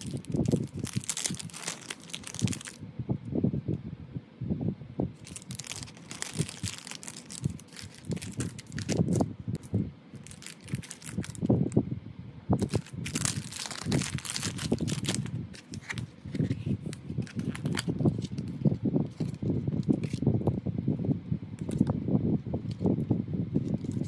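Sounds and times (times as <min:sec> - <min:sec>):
plastic wrapping crinkling: 0:00.0 - 0:02.8, 0:05.2 - 0:11.6, 0:12.6 - 0:20.2.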